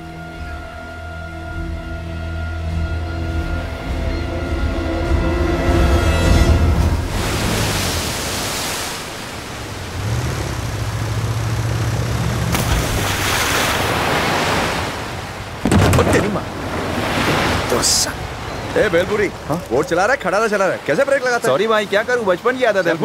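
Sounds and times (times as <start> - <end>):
motorboat engine humming: 0.0 - 22.3
loud rush of water: 6.8 - 23.0
surf washing onto beach: 6.8 - 23.0.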